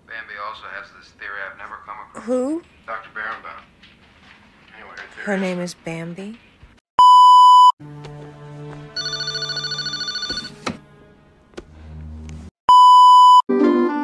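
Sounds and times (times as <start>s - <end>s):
high-pitched bleep: 7.0s - 7.7s, 12.7s - 13.4s
telephone ringing: 9.0s - 10.6s.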